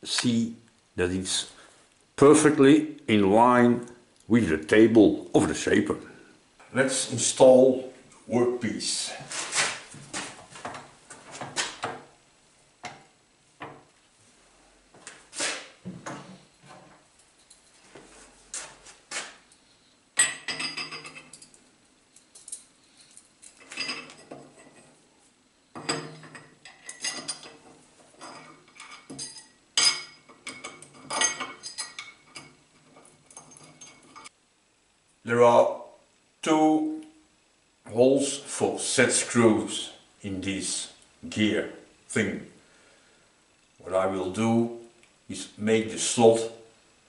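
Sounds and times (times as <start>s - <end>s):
steel parts clinking and knocking: 20.2s - 21.6s, 22.2s - 24.9s, 25.8s - 34.3s.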